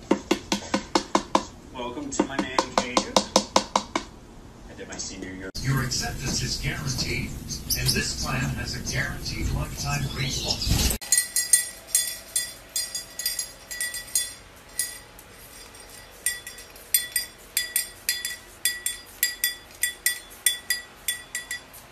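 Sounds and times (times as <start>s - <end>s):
metal object clinking in beak: 11.0s - 21.9s.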